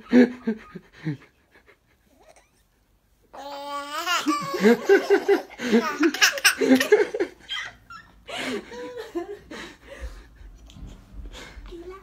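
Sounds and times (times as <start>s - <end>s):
baby laughing: 3.4s - 8.1s.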